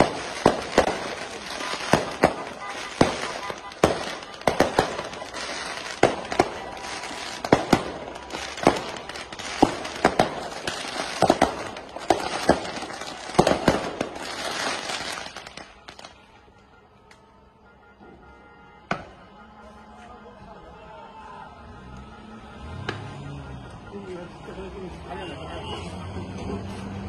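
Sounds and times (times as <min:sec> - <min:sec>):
firework bangs: 0:00.0 - 0:16.3
firecrackers crackling: 0:00.0 - 0:17.3.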